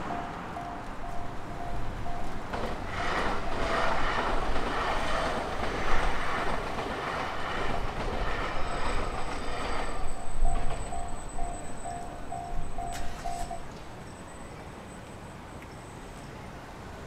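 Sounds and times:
railway crossing bell dinging: 0:00.0 - 0:04.1, 0:08.8 - 0:14.6
train running past: 0:00.0 - 0:15.0.

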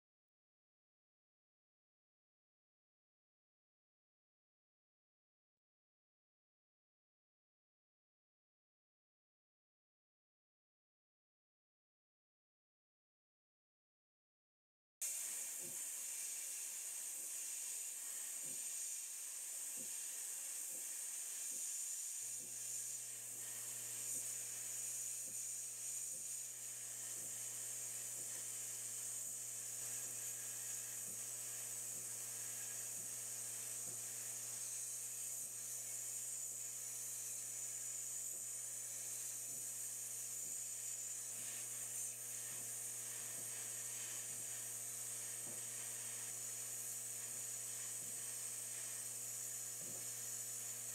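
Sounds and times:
sandblasting gun hissing: 0:15.0 - 0:50.9.

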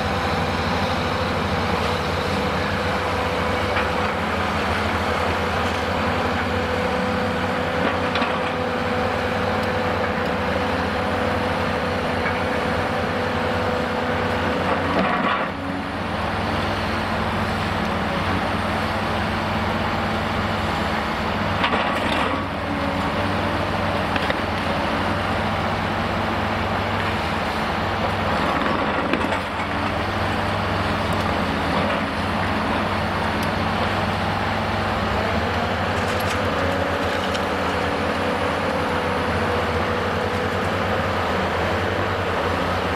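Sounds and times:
diesel engine running: 0:00.0 - 0:42.9.

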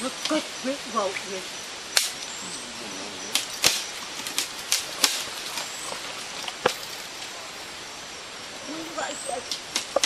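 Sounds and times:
faint forest background: 0:00.0 - 0:10.0.

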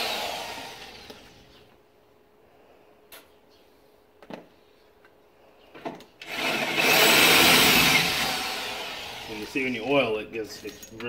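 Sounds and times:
electric drill boring into steel: 0:00.0 - 0:01.4, 0:06.2 - 0:09.8.

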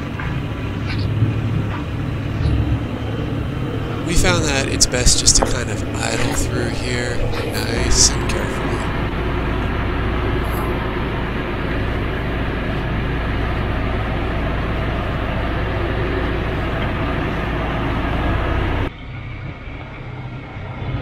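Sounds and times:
drivetrain and tyre noise: 0:00.0 - 0:21.0
off-road engine idling: 0:00.0 - 0:21.0.

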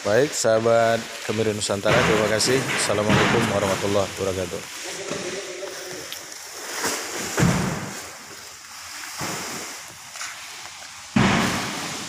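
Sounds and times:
sacks thudding onto a stack: 0:06.7 - 0:08.2, 0:11.1 - 0:12.0.

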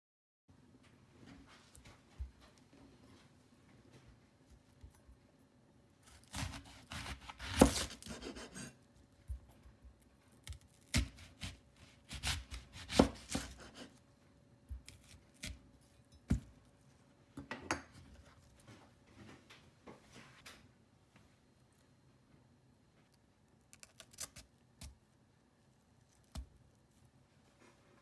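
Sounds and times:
knife crunching through onion: 0:06.0 - 0:09.4, 0:10.4 - 0:14.0.

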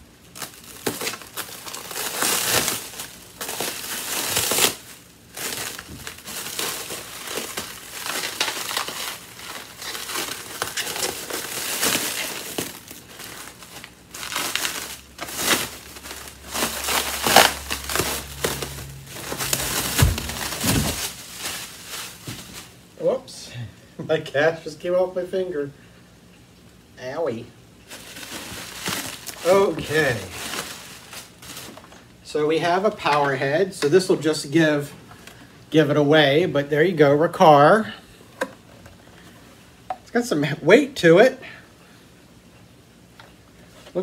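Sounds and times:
plastic wrap crinkling: 0:00.0 - 0:22.9, 0:27.8 - 0:34.6.

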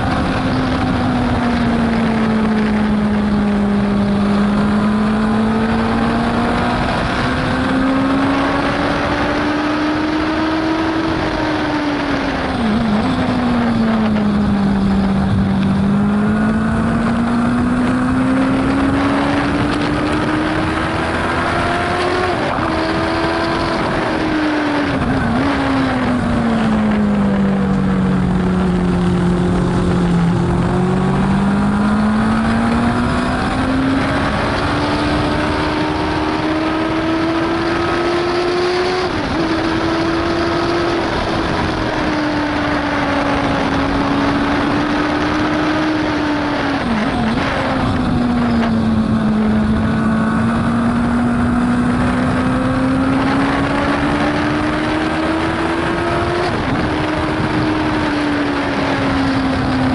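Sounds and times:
racing sidecar engine: 0:00.0 - 0:59.9
rush of noise: 0:00.0 - 0:59.9.

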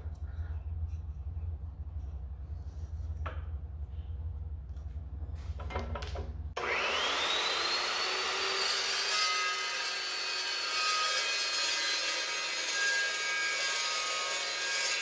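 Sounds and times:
vise clicks and knocks: 0:05.6 - 0:06.5
chop saw motor whine: 0:06.6 - 0:10.5
saw blade cutting steel: 0:06.6 - 0:15.0.

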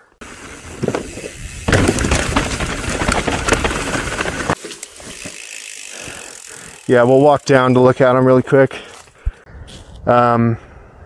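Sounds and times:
bike tyres on dirt trail: 0:00.0 - 0:10.0
bike rattling clicks: 0:00.6 - 0:07.1.

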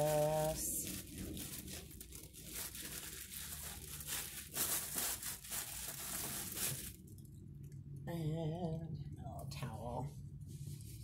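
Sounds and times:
wrapping paper crinkling: 0:00.0 - 0:07.4.

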